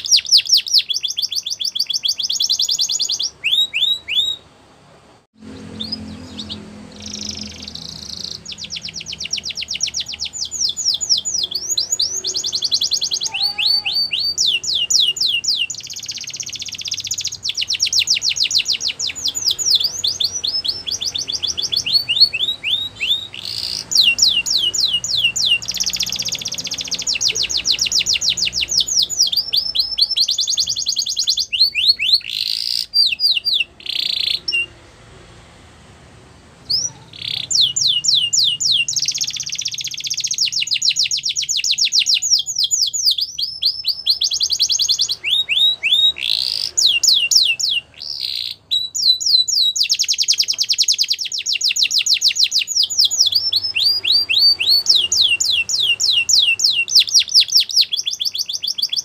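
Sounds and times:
canary singing trills: 0:00.0 - 0:04.5, 0:05.4 - 0:35.0, 0:36.4 - 0:59.0.

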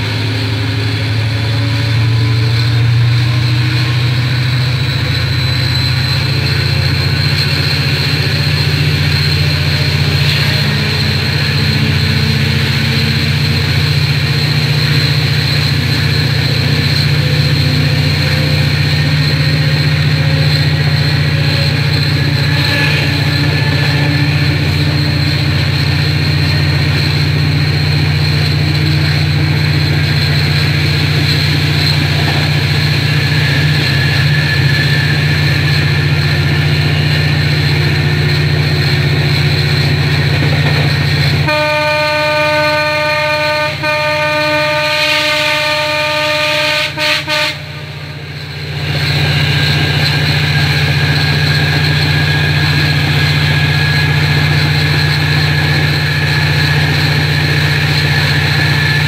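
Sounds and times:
train running drone: 0:00.0 - 0:59.0
train horn blast: 0:07.0 - 0:27.1, 0:40.3 - 0:48.4.

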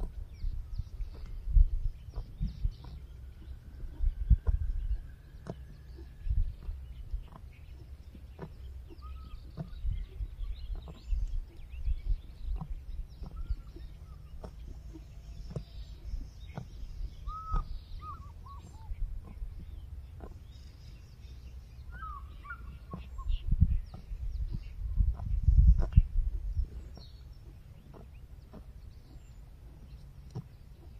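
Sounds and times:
chirping bird calls: 0:00.0 - 0:30.9
steady low rumble: 0:00.0 - 0:30.9
zebra tearing and munching grass: 0:12.4 - 0:17.1, 0:25.1 - 0:30.9.

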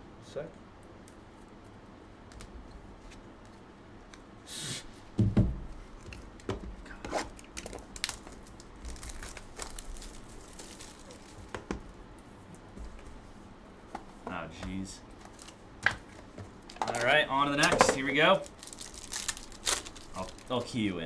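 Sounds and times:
plastic wrap tearing and crinkling: 0:07.2 - 0:11.5, 0:18.0 - 0:20.8.

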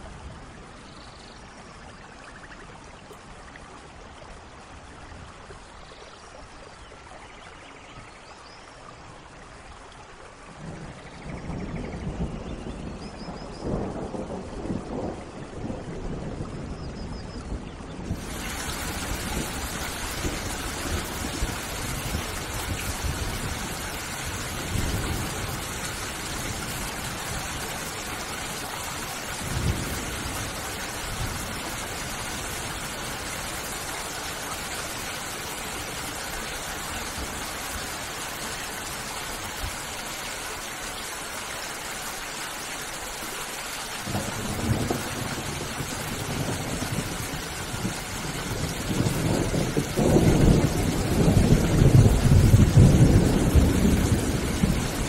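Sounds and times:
steady rain: 0:00.0 - 0:55.0
thunder rumbling: 0:10.6 - 0:37.9, 0:44.0 - 0:55.0.

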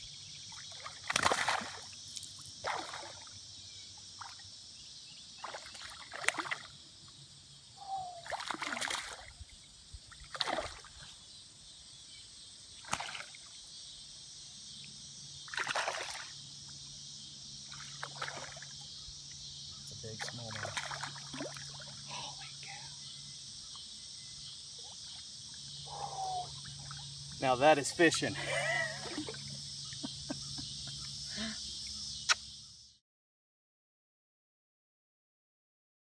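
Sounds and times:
high insect chorus: 0:00.0 - 0:33.0
fish splashing at water surface: 0:00.6 - 0:03.3, 0:05.4 - 0:06.8, 0:08.2 - 0:09.4, 0:10.2 - 0:11.0, 0:12.8 - 0:13.5, 0:15.5 - 0:16.4, 0:17.7 - 0:18.8, 0:20.2 - 0:22.0.

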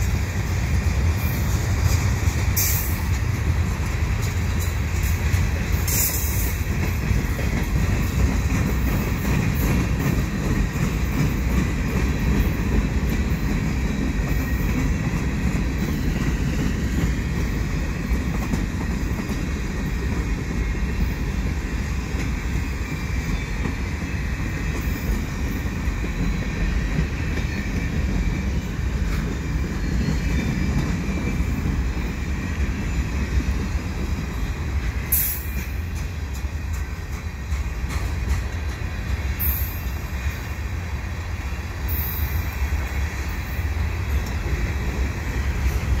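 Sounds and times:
freight train wheels rumbling: 0:00.0 - 0:46.0.

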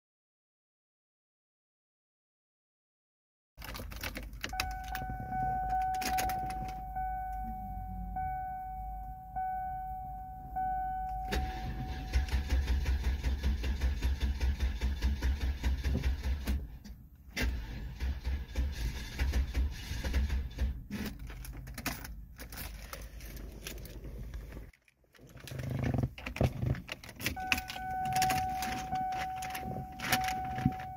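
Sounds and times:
car warning chime: 0:04.4 - 0:12.8, 0:27.3 - 0:30.9
engine starter cranking: 0:11.2 - 0:21.5.

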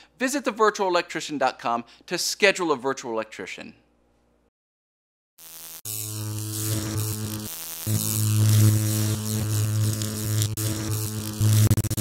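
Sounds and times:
electrical buzz with crackling hiss: 0:05.4 - 0:12.0.

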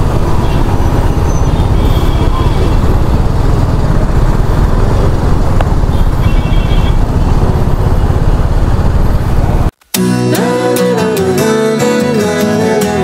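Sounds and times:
wind and road noise on microphone: 0:00.0 - 0:09.8.

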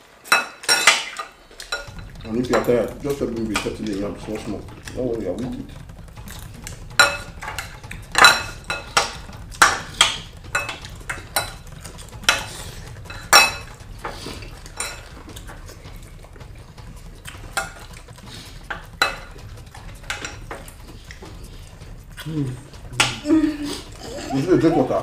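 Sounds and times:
utensils clinking against dishes: 0:00.1 - 0:04.6.

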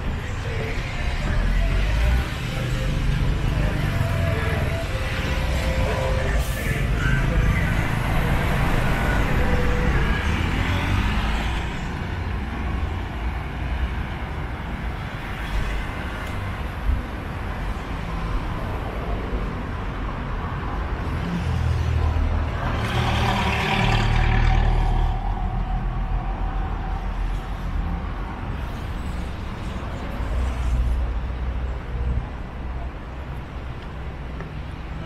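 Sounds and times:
traffic rumble on wet roads: 0:00.0 - 0:35.0
loud vehicle passing: 0:01.5 - 0:12.3, 0:21.1 - 0:28.6.

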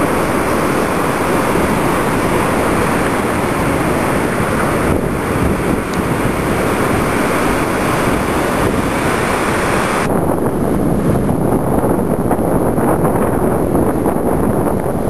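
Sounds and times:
ocean surf breaking: 0:00.0 - 0:11.5
wind buffeting microphone: 0:00.0 - 0:15.0.

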